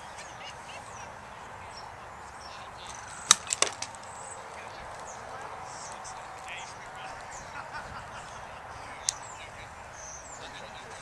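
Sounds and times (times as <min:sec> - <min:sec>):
outdoor background noise: 0:00.0 - 0:11.0
plastic ball sharp crack: 0:03.2 - 0:04.1.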